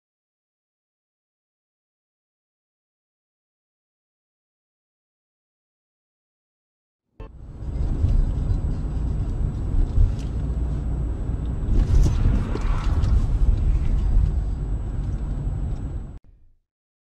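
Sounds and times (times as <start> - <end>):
car engine and road noise: 7.2 - 16.2.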